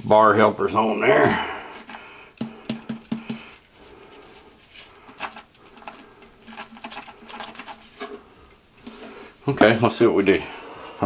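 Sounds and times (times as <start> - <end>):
cleanser canister tapping: 2.4 - 3.5.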